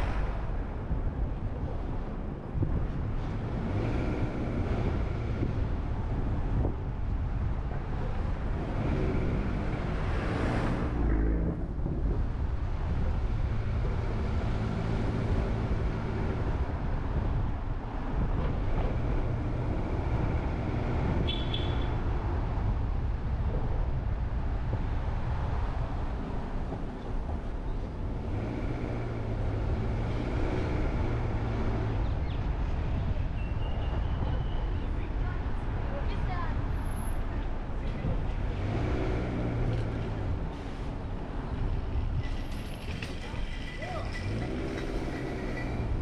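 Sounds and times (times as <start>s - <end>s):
car engine and tyre noise: 0.0s - 46.0s.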